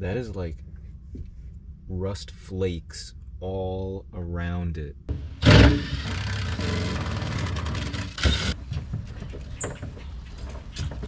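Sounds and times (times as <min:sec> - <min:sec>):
cordless power tool motor running: 0:05.4 - 0:08.6.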